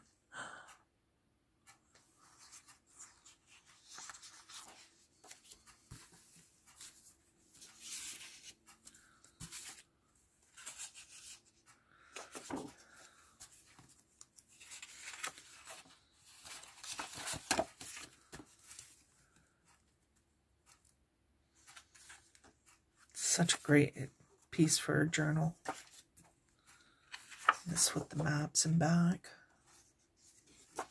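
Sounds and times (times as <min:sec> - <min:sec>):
paper sheets rustling: 0:02.2 - 0:09.8, 0:10.5 - 0:19.0, 0:25.6 - 0:28.3, 0:29.7 - 0:30.9.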